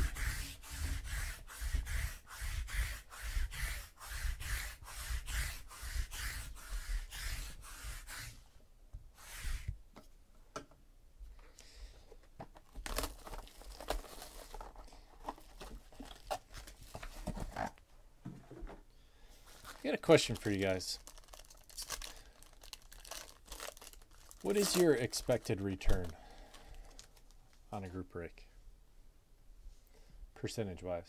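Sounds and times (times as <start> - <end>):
fast rubbing strokes: 0.0 - 8.4, 9.2 - 9.7
foil pack crinkling: 12.6 - 17.7, 19.4 - 27.5.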